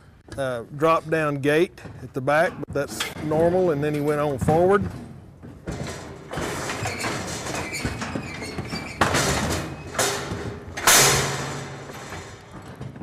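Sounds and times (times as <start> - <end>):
metal chute rattling and clanging: 0.4 - 13.0
sharp metal bangs: 9.0 - 12.6.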